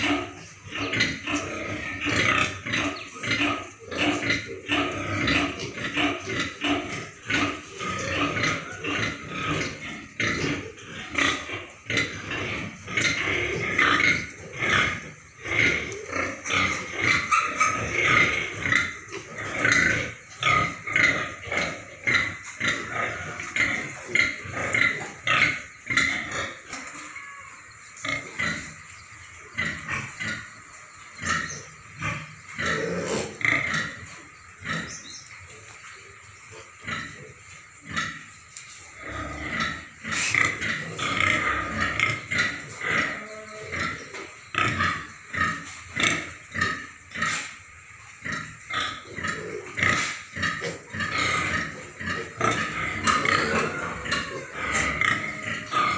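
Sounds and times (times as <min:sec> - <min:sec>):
pigs grunting and squealing: 0:00.0 - 0:55.9.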